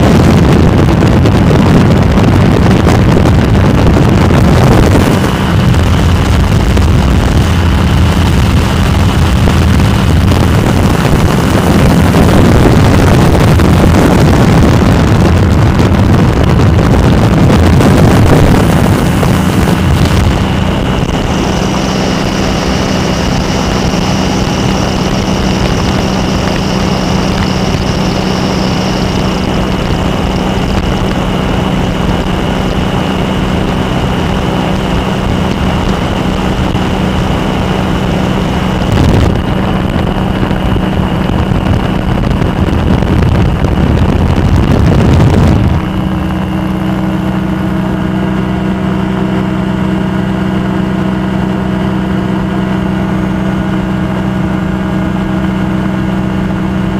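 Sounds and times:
rush of wind noise: 0:00.0 - 0:56.9
ultralight engine and propeller droning: 0:00.0 - 0:56.9.

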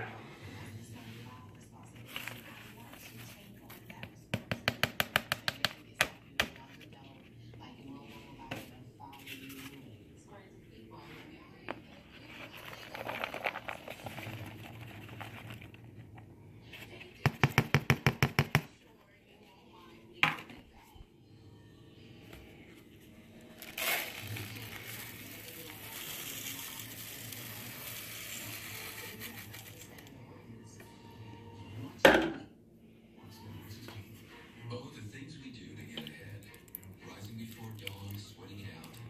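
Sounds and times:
dry rice pouring into pot: 0:23.6 - 0:29.8
knock on pot: 0:32.1 - 0:32.5.

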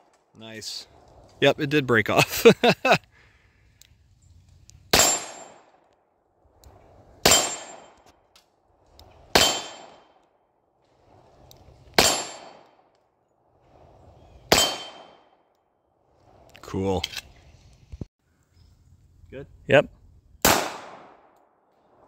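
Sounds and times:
pistol shots: 0:04.9 - 0:05.8, 0:07.2 - 0:08.0, 0:09.3 - 0:10.2, 0:12.0 - 0:12.7, 0:14.5 - 0:15.4, 0:20.4 - 0:21.4.

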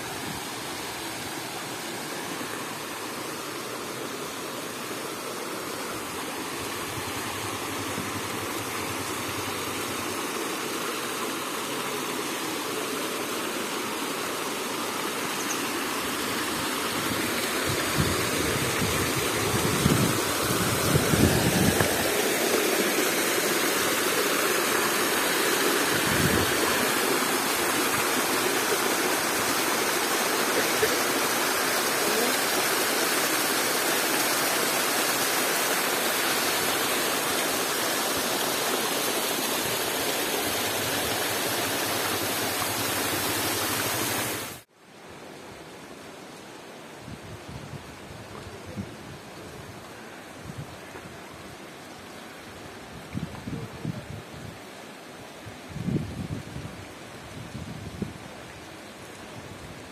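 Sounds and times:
waterfall rushing: 0:00.0 - 0:44.7.

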